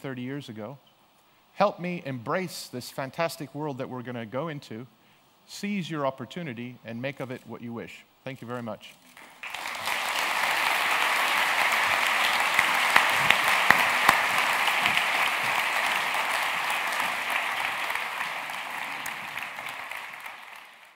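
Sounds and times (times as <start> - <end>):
audience applauding: 9.2 - 20.9.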